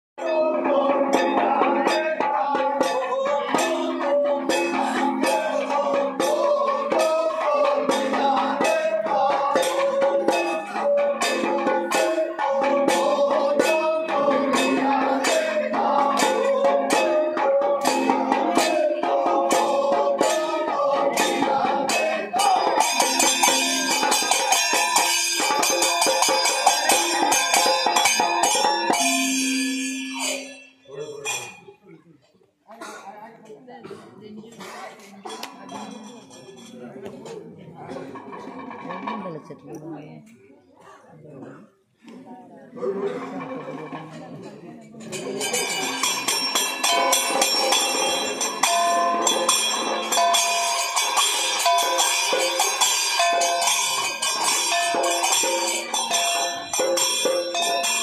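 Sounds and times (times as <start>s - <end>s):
men singing: 0.2s - 24.8s
drum beat: 0.3s - 30.2s, 45.2s - 58.0s
hand cymbals clattering: 1.1s - 31.8s, 34.6s - 37.1s, 43.1s - 58.0s.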